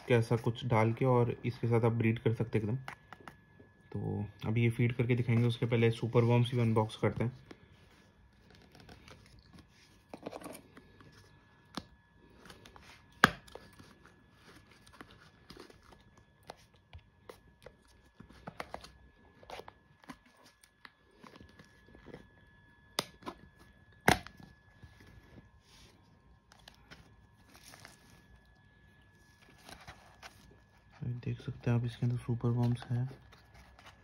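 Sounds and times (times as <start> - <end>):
packaging tearing and rustling: 8.2 - 22.4, 26.4 - 31.0.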